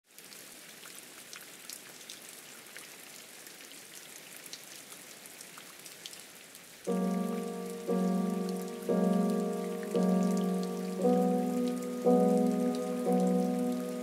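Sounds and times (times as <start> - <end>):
rain falling: 0.1 - 14.0
raindrop ticks: 6.9 - 14.0.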